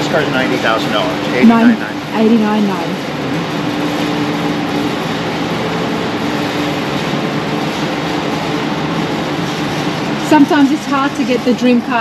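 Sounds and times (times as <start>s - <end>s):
ventilation droning: 0.0s - 12.0s.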